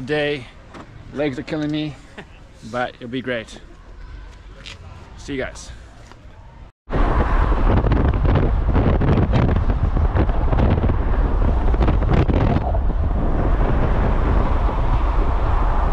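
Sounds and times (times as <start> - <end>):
wind buffeting microphone: 6.9 - 15.9.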